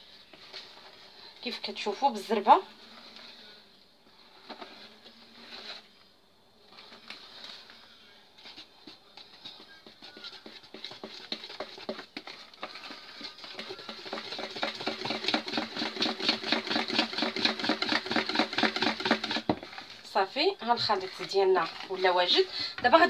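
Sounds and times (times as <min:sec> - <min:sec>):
whisk beating batter in bowl: 0:08.4 - 0:20.0, 0:20.7 - 0:23.0.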